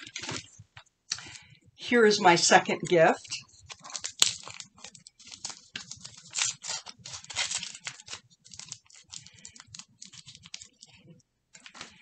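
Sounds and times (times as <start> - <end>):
wrapping paper tearing and crinkling: 3.2 - 11.0.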